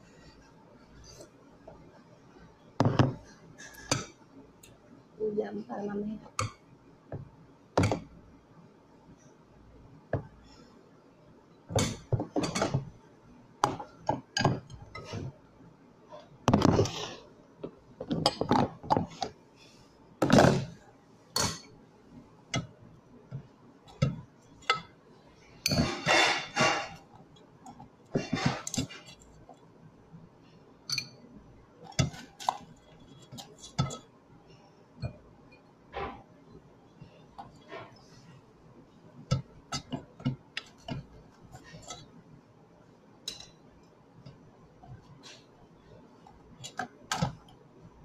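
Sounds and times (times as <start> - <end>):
spoon scraping: 25.7 - 27.0.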